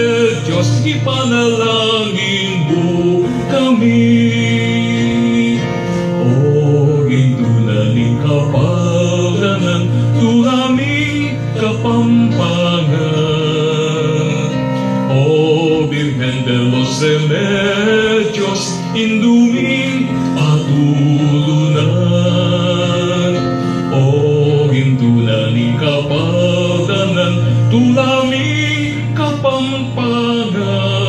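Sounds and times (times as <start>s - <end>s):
instrumental accompaniment: 0.0s - 31.0s
person singing with vibrato: 0.0s - 31.0s.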